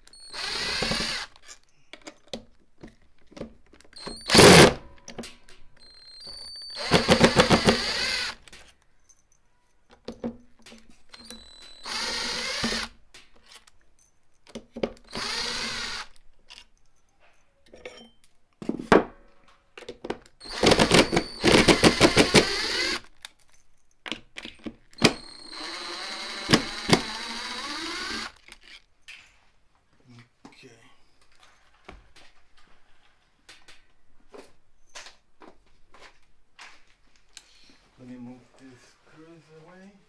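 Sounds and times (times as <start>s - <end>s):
cordless drill whining: 0.1s - 1.4s, 4.0s - 4.8s, 5.8s - 8.4s, 11.1s - 13.0s, 15.1s - 16.2s, 20.4s - 23.1s, 24.9s - 28.8s.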